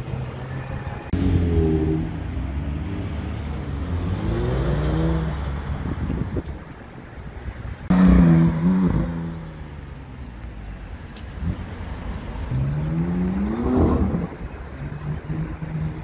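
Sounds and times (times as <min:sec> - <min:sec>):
car engine revving: 0:01.1 - 0:05.8.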